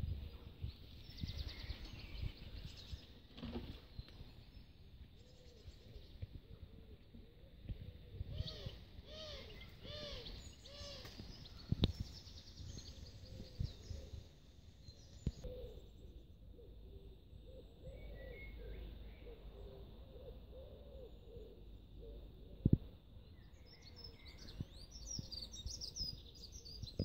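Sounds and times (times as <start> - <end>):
faint songbird chirps: 0.0 - 27.0
pigeon cooing: 7.8 - 11.2, 16.6 - 22.7.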